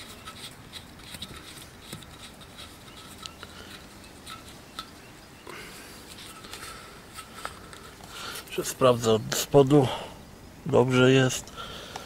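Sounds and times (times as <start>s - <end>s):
plastic caps clicking and rubbing: 0.0s - 5.1s, 6.0s - 8.5s.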